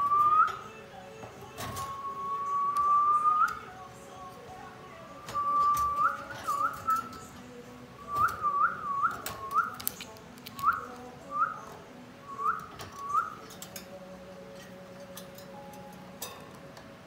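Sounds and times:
parakeet whistling: 5.2s - 7.2s, 12.3s - 13.5s.

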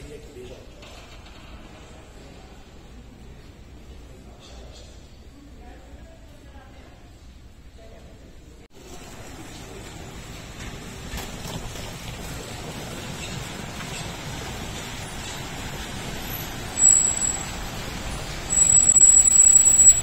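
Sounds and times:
traffic noise: 8.7s - 20.0s
thin high squeal: 16.3s - 20.0s.

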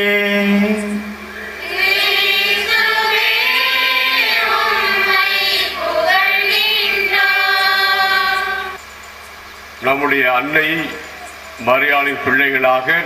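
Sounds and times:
choir singing long notes: 0.0s - 8.8s.

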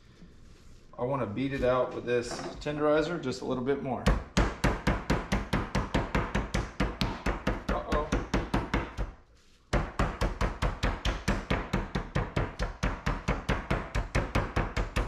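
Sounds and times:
mallet pounding meat on wooden board: 4.1s - 15.0s.

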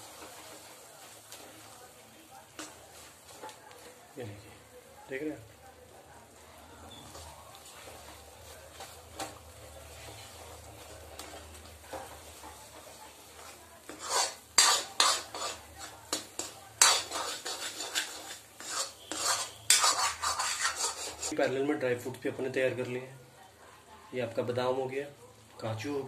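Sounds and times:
metal spatula scraping metal pan: 11.1s - 21.4s.

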